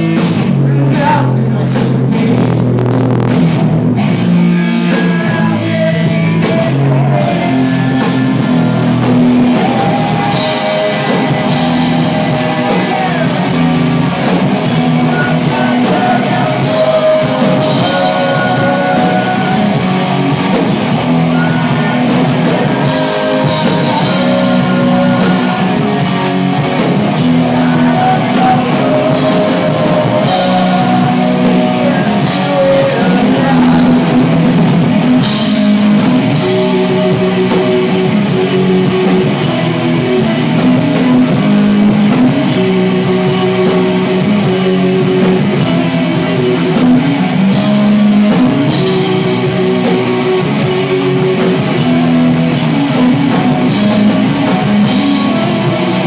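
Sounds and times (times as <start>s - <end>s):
hard rock band playing live: 0.0s - 56.0s
person singing: 0.5s - 2.7s, 4.5s - 39.2s.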